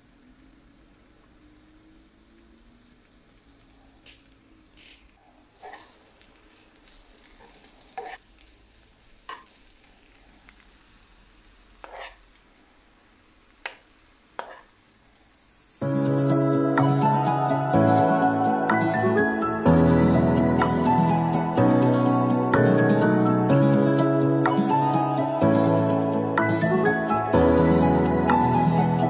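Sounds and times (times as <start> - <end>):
faint sizzle: 0.0 - 29.0
metal spoon scraping a frying pan: 5.6 - 6.0, 7.4 - 8.2, 11.8 - 12.2, 14.4 - 14.7.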